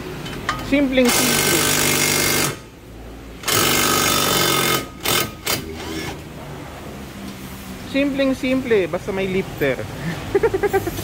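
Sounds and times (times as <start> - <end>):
impact wrench hammering: 0.2 - 2.7, 3.4 - 6.2.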